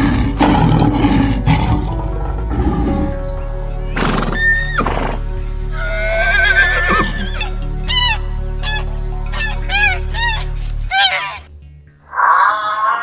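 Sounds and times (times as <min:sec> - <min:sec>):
steady music bed: 0:00.0 - 0:13.0
horse whinnying: 0:04.0 - 0:11.5
honking goose calls: 0:05.8 - 0:11.5.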